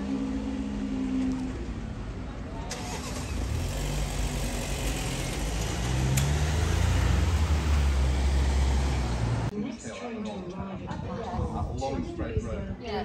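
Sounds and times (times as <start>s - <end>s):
cars driving past: 0.0s - 9.5s
tyres on road: 0.0s - 9.6s.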